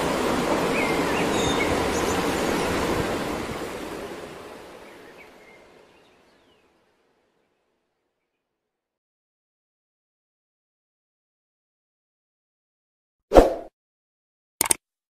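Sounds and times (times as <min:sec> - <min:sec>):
rushing water: 0:00.0 - 0:07.2.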